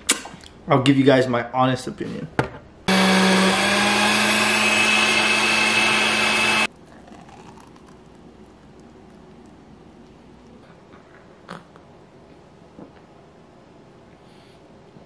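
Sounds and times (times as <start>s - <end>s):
blender running: 2.9s - 6.7s.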